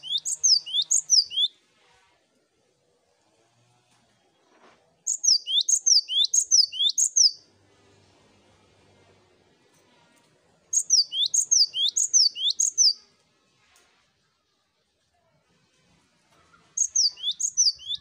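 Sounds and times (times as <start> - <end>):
bird singing high whistled notes: 0.0 - 1.5, 5.1 - 7.4, 10.7 - 13.0, 16.8 - 18.0.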